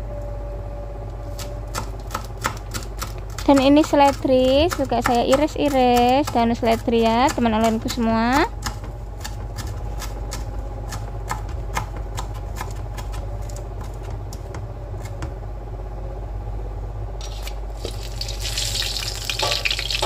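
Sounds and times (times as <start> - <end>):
steady low hum: 0.0 - 20.0
knife chopping on cutting board: 1.4 - 13.2
shrimp frying in oil: 17.2 - 20.0.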